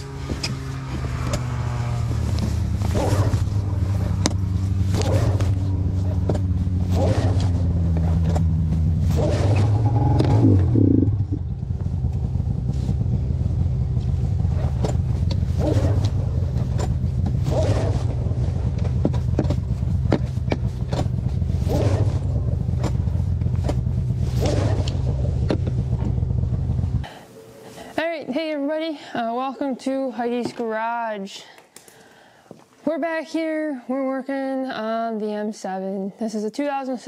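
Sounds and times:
snowmobile engine revving: 0:00.0 - 0:27.1.

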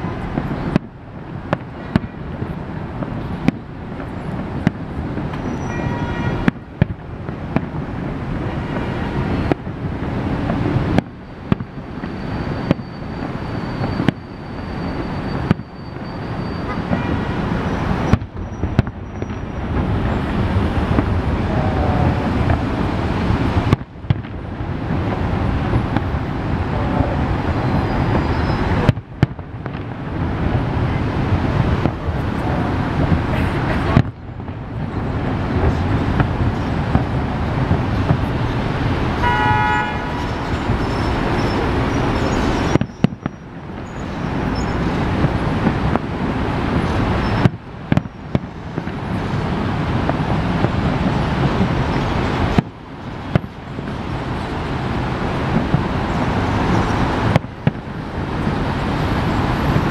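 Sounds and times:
firework shells bursting: 0:40.2 - 0:46.1.

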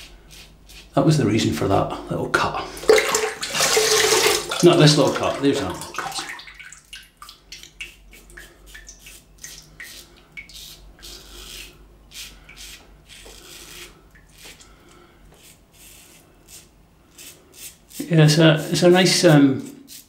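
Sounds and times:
razor scraping stubble: 0:00.0 - 0:01.4, 0:07.8 - 0:20.0.

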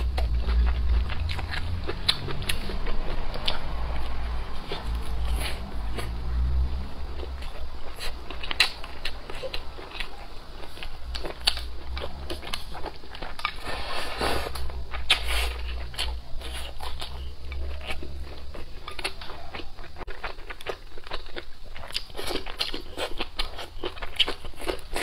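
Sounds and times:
chewing and crunching food: 0:00.0 - 0:25.0.

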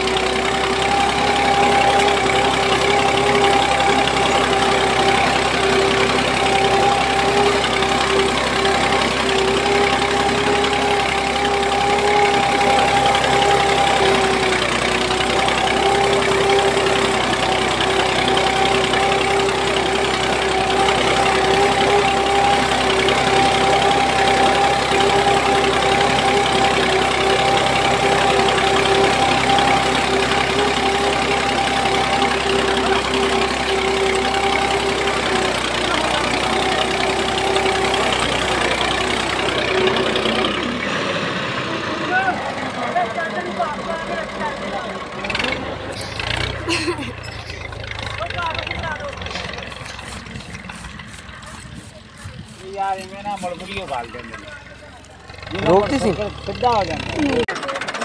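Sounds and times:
toy electric motor whining: 0:45.9 - 0:47.8.

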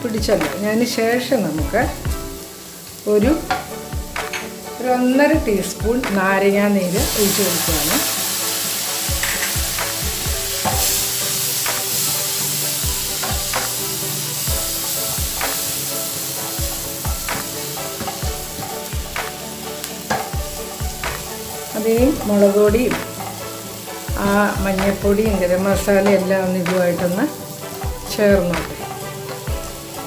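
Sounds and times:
food sizzling in a frying pan: 0:00.0 - 0:30.0
spatula scraping a pan: 0:20.0 - 0:23.4.

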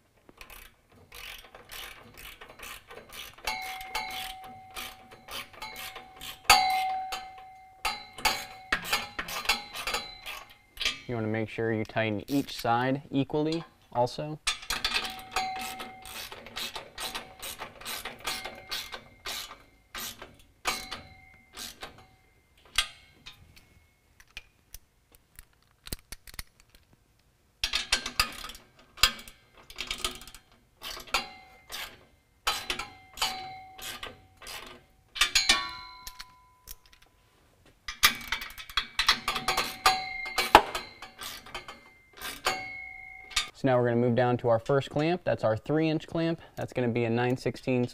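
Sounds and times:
ratchet wrench clicking: 0:00.4 - 0:11.0, 0:14.6 - 0:22.0, 0:38.0 - 0:42.6.

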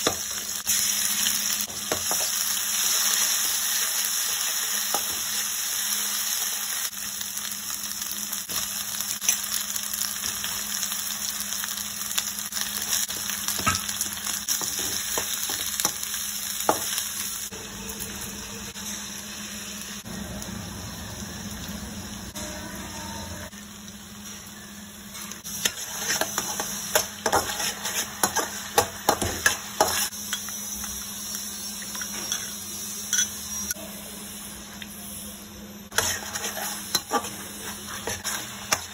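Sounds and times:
vegetables sizzling in oil: 0:00.0 - 0:38.9
metal spoon scraping a pan: 0:25.2 - 0:30.5, 0:35.9 - 0:38.9.

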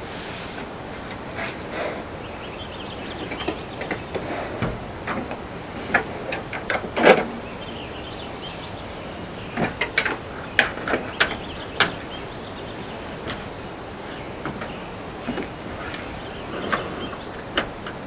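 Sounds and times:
steady hiss: 0:00.0 - 0:18.0
claws knocking and scraping on truck: 0:03.2 - 0:07.4, 0:09.5 - 0:12.1, 0:12.9 - 0:18.0.

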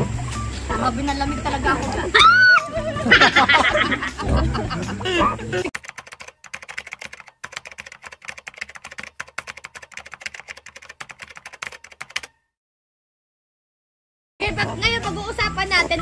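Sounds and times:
keyboard typing clicks: 0:05.8 - 0:12.4.

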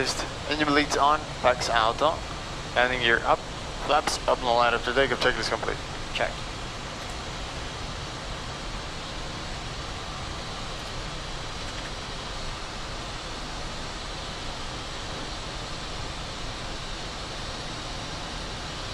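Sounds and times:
cockpit air rushing and jet: 0:00.0 - 0:06.4.

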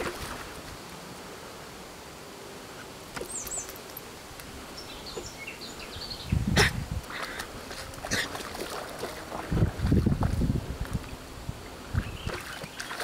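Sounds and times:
dog splashing in puddle: 0:00.0 - 0:00.5, 0:07.2 - 0:10.4, 0:12.3 - 0:13.0
small birds chirping: 0:03.2 - 0:04.0, 0:04.7 - 0:07.5, 0:11.9 - 0:13.0.

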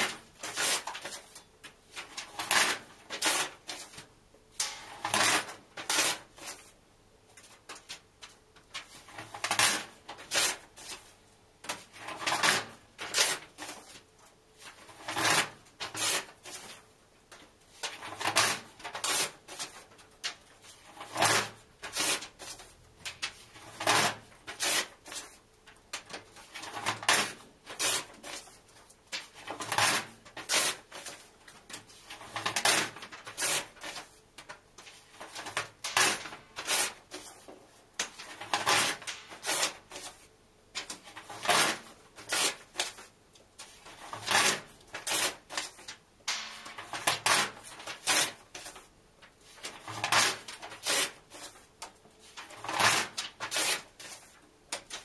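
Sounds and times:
paper tearing: 0:00.0 - 0:01.2, 0:01.9 - 0:04.0, 0:04.9 - 0:06.7, 0:09.1 - 0:11.0, 0:11.8 - 0:14.0, 0:14.6 - 0:16.8, 0:17.8 - 0:19.8, 0:20.6 - 0:22.7, 0:23.3 - 0:25.3, 0:26.4 - 0:31.3, 0:32.1 - 0:34.2, 0:35.2 - 0:37.4, 0:38.0 - 0:40.2, 0:40.8 - 0:43.1, 0:43.8 - 0:45.9, 0:46.8 - 0:48.9, 0:49.5 - 0:51.7, 0:52.4 - 0:55.0.

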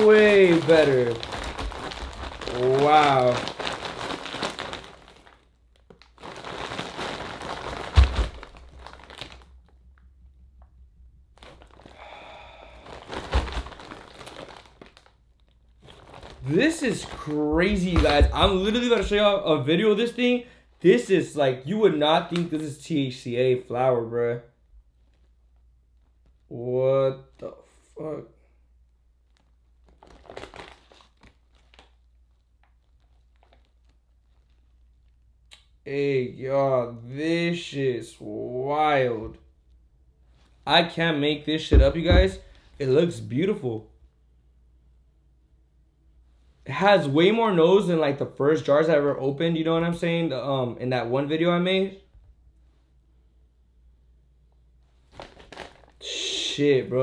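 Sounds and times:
plastic bag crinkling: 0:00.0 - 0:10.0, 0:11.3 - 0:19.4, 0:29.2 - 0:35.2, 0:41.7 - 0:42.7, 0:55.0 - 0:56.0
low thump: 0:41.7 - 0:42.6.

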